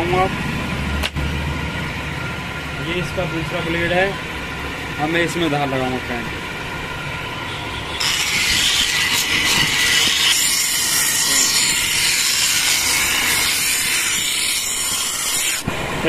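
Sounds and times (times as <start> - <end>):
blade on grinding wheel: 7.9 - 15.8.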